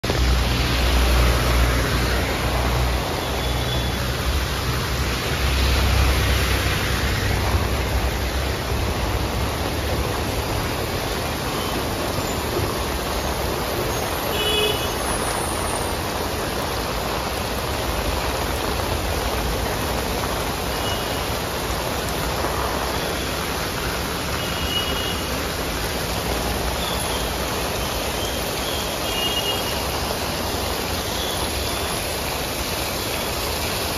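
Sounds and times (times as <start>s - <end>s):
heavy rain on road: 0.0s - 33.9s
passing traffic rumble: 0.0s - 33.9s.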